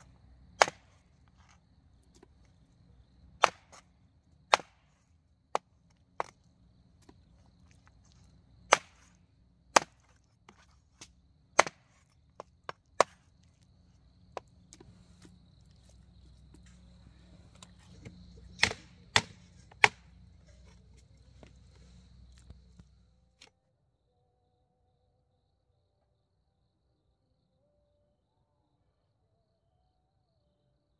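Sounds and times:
knife chopping on wooden board: 0:09.8 - 0:11.8, 0:18.5 - 0:20.0.

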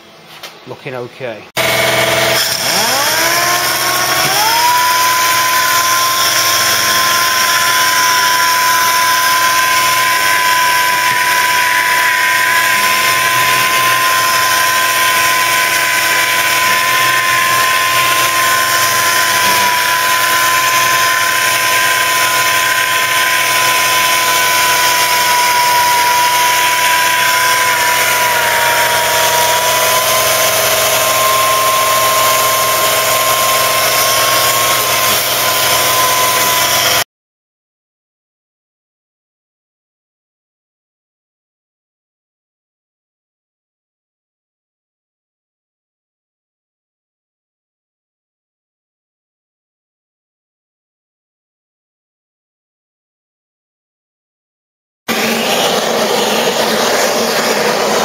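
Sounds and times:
orbital sander whining on metal: 0:01.6 - 0:37.0, 0:55.1 - 0:58.0.

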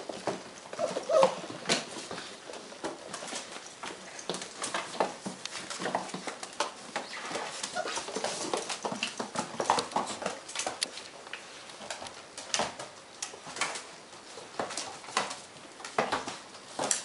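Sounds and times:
puppy claws clicking on hard floor: 0:00.0 - 0:17.0
puppies whimpering and squeaking: 0:00.7 - 0:01.6, 0:07.0 - 0:08.4.

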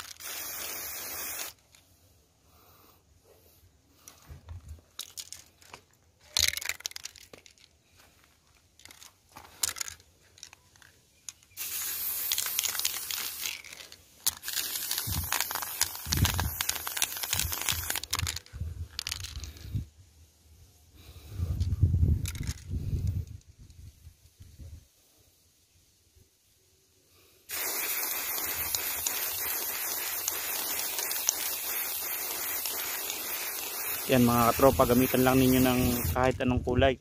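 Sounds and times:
spray paint can hissing: 0:00.0 - 0:01.8, 0:10.8 - 0:19.8, 0:27.5 - 0:36.4.

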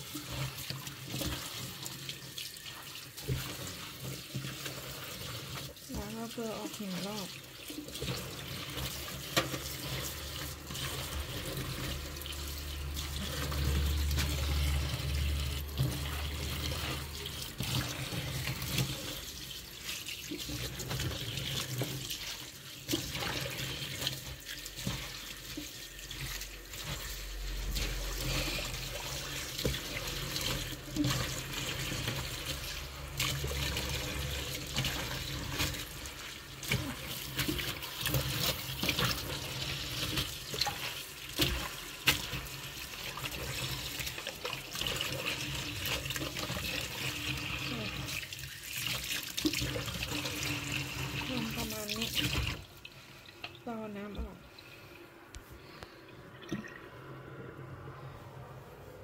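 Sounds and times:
low hum: 0:55.6 - 0:59.0.

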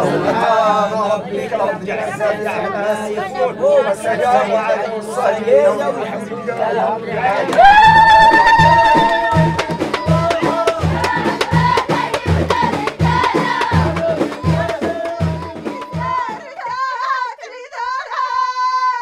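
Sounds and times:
group singing a chanted refrain: 0:00.0 - 0:19.0
high voice singing alone: 0:00.0 - 0:19.0
people clapping: 0:06.5 - 0:16.3
hand drum beat: 0:07.4 - 0:16.4.

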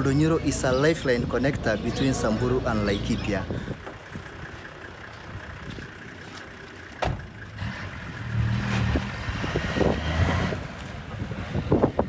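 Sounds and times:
truck engine running: 0:00.0 - 0:12.0
truck door slamming: 0:07.0 - 0:07.4.

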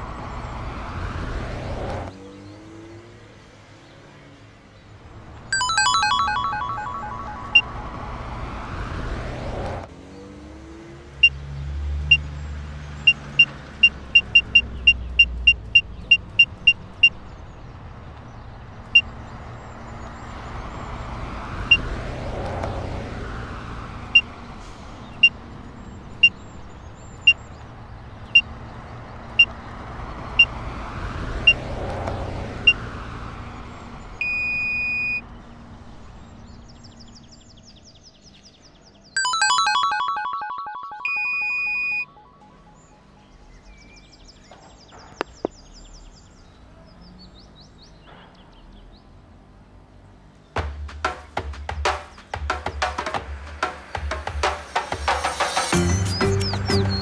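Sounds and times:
car driving by: 0:05.1 - 0:16.6
steady electronic beep: 0:05.6 - 0:08.4, 0:39.2 - 0:43.1.

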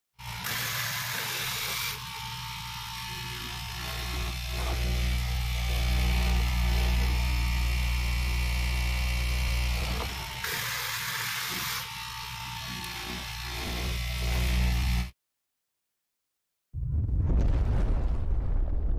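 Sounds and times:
fabric cutting machine motor buzz: 0:00.2 - 0:15.2.

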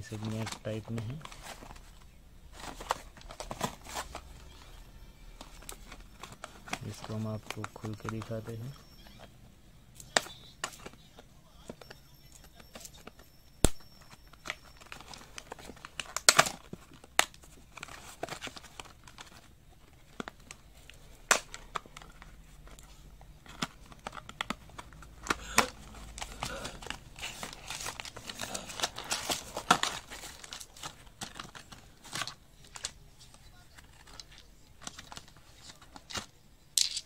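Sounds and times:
plastic packaging crinkling: 0:00.0 - 0:09.2, 0:11.6 - 0:37.0.

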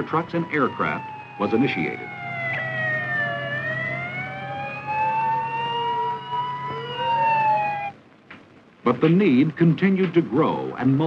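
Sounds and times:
fire engine sirens wailing: 0:00.0 - 0:08.0.

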